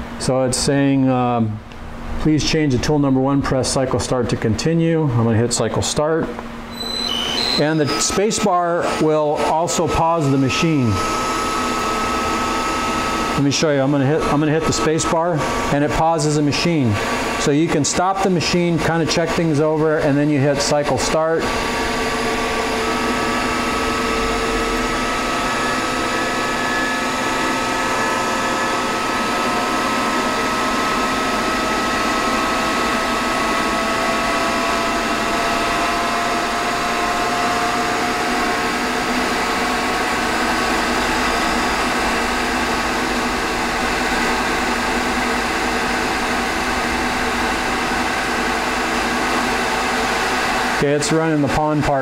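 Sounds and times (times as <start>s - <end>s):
lathe motor whine and hum: 6.2s - 51.6s
thin rising whining tones: 9.4s - 13.5s, 21.4s - 50.7s.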